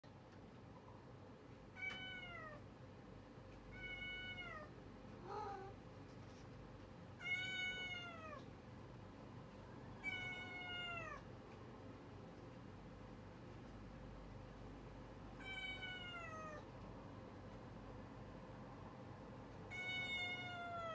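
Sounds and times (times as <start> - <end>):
cat meowing: 1.8 - 2.6, 3.7 - 5.8, 7.2 - 8.5, 10.0 - 11.2, 15.4 - 16.7, 19.7 - 20.9.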